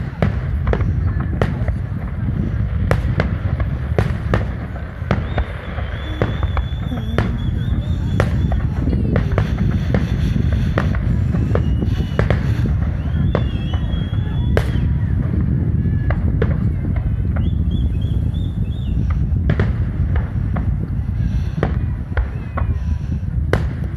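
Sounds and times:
fireworks bangs and crackles: 0:00.0 - 0:23.9
low rumble: 0:00.0 - 0:23.9.

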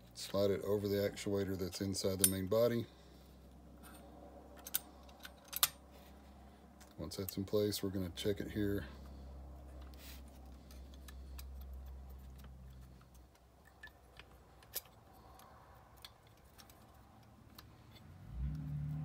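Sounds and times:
metal linkage clicking: 0:04.6 - 0:05.8.

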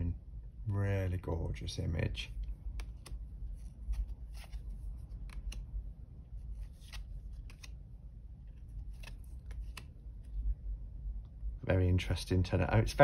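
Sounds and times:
low room hum: 0:00.0 - 0:13.0
cards being handled: 0:02.3 - 0:10.6.

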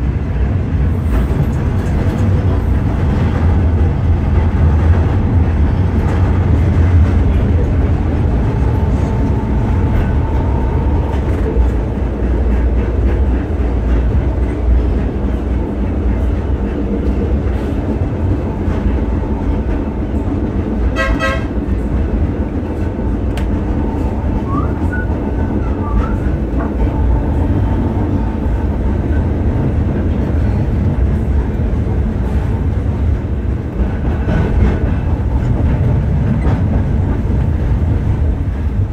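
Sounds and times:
tram motors and wheels rumbling: 0:00.0 - 0:38.9
tram warning horn toot: 0:03.4 - 0:13.3, 0:18.0 - 0:22.1, 0:22.7 - 0:29.3.

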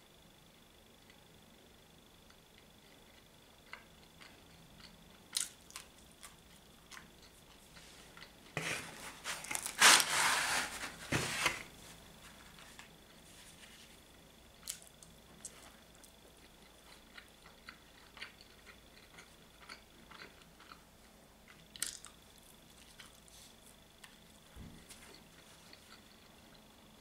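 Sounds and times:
chewing clicks: 0:02.3 - 0:07.5, 0:14.6 - 0:20.8, 0:21.5 - 0:22.2
pizza slice rustling and tearing: 0:08.6 - 0:14.0.

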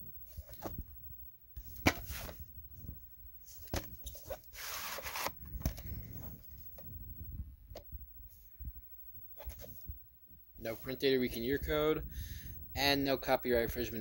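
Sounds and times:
cardboard sleeve rustling: 0:00.3 - 0:00.9, 0:01.6 - 0:07.0, 0:09.4 - 0:09.9.

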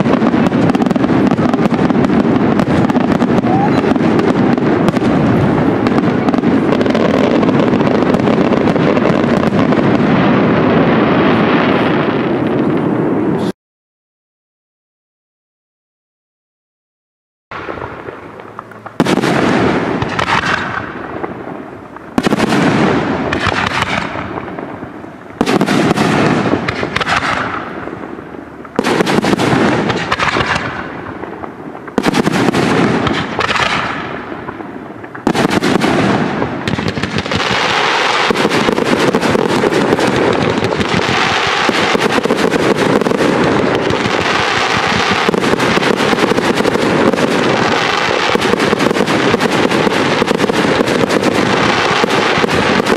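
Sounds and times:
firework shells bursting: 0:17.6 - 0:52.9.

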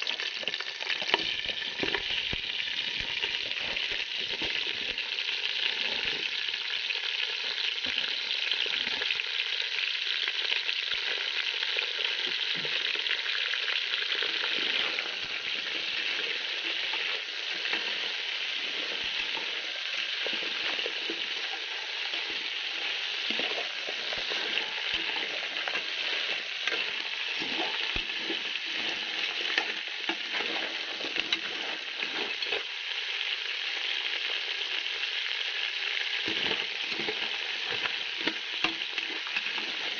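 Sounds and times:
crabs sizzling in a pot: 0:00.0 - 0:39.9.

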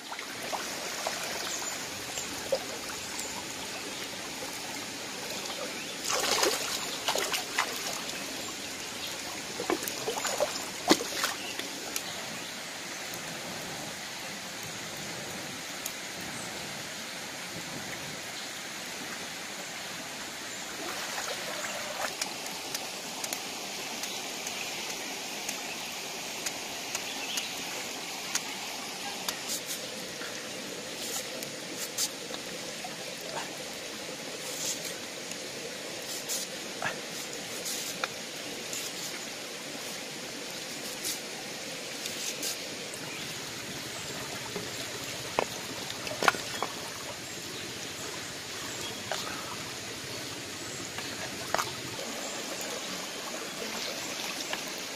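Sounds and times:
stream flowing over rocks: 0:00.0 - 0:54.9
splashes and knocks from handling: 0:06.0 - 0:08.2, 0:09.6 - 0:11.7, 0:45.3 - 0:46.9.

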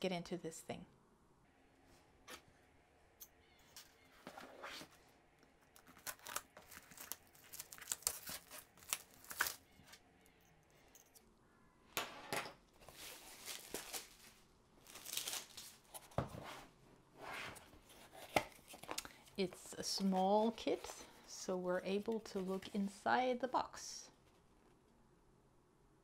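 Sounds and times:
plastic wrap crinkling and tearing: 0:05.7 - 0:10.0, 0:12.8 - 0:16.0.

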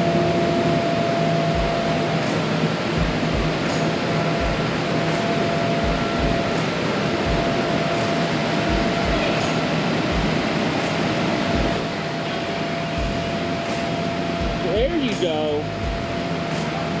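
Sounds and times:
air blowers whooshing: 0:00.0 - 0:17.0
low dull thumps: 0:07.2 - 0:07.7.

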